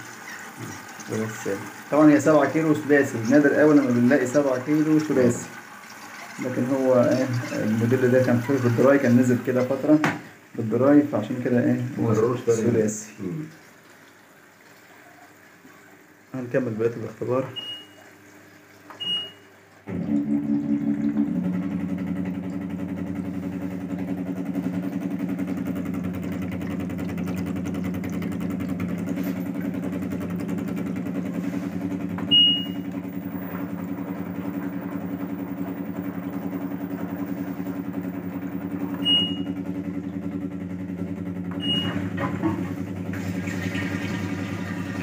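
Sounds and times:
washing machine drain pump humming: 0.0 - 45.0
control panel beeps: 17.6 - 18.0, 19.0 - 19.4, 32.3 - 32.9, 39.0 - 39.6, 41.5 - 42.0.

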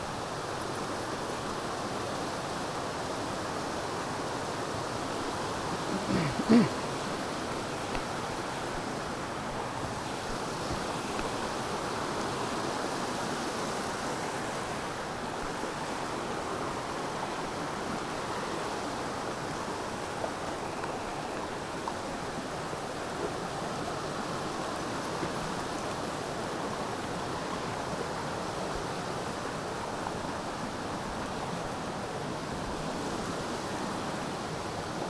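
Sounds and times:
brook rushing over rapids: 0.0 - 35.0
brief voice-like sound: 5.7 - 6.8.

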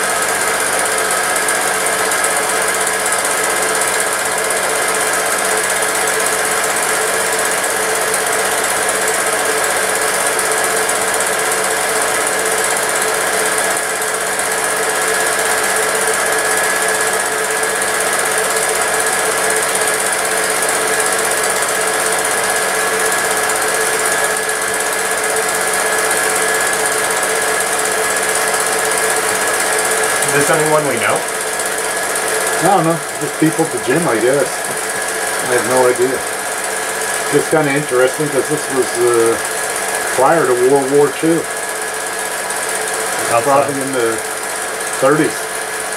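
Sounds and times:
film projector running: 0.0 - 45.9.

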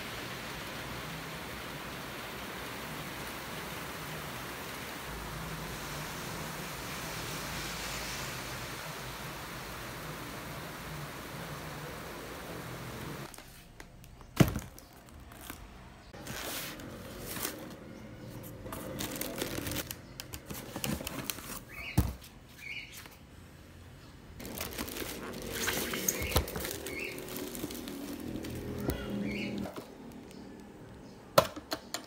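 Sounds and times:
plastic wrap crinkling: 13.2 - 21.9, 24.4 - 30.7
cardboard rustling: 14.4 - 17.8, 18.4 - 21.7, 24.4 - 29.1.

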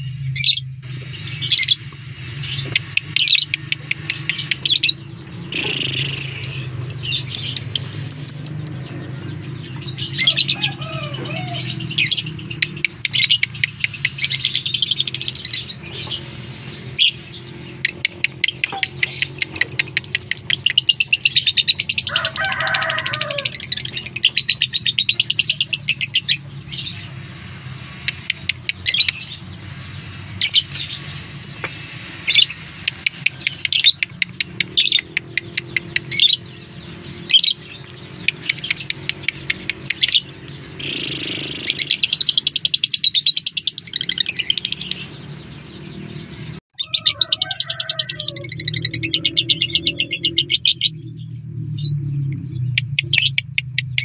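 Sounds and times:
lovebird chattering trills: 32.9 - 50.8.

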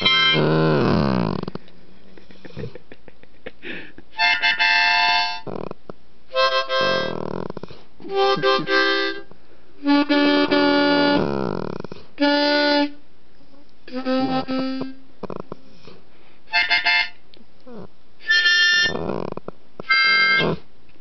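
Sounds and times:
harmonica chords: 0.0 - 1.4, 4.1 - 5.6, 6.3 - 7.4, 8.0 - 11.5, 12.2 - 13.0, 13.9 - 15.1, 16.5 - 17.2, 18.2 - 19.2, 19.8 - 20.6
dog humming along: 0.0 - 1.7, 5.4 - 5.8, 6.6 - 9.1, 9.9 - 12.6, 17.6 - 20.7.

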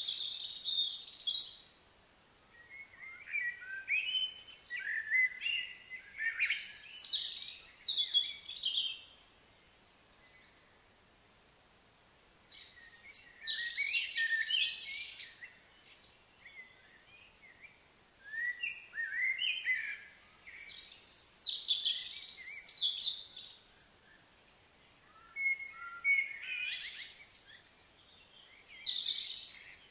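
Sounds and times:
birds chirping and whistling: 18.3 - 24.0, 28.3 - 29.9.

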